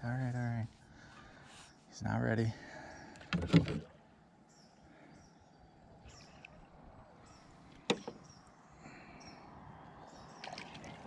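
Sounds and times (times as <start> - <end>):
faint bird chirps: 4.4 - 11.0.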